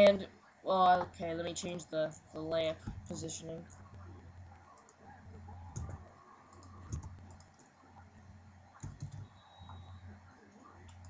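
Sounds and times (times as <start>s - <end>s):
low electrical hum: 0.0s - 11.0s
mouse and keyboard clicks: 5.7s - 7.7s.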